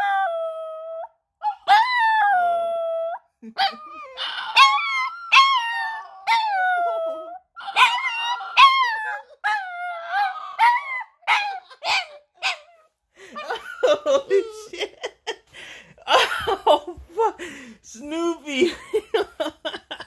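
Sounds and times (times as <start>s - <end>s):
small dog howling and yelping: 0.0s - 14.6s.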